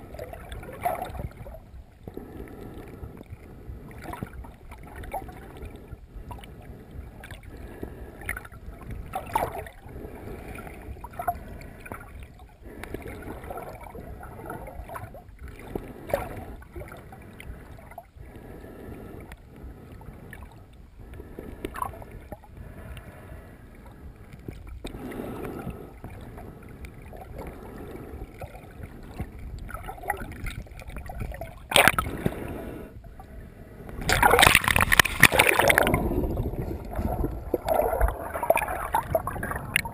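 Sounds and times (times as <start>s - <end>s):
water splashing: 0.0s - 1.6s, 8.2s - 18.0s, 24.4s - 32.8s, 33.9s - 39.9s
muffled underwater rumble: 0.0s - 39.9s
water swishing: 0.0s - 39.9s.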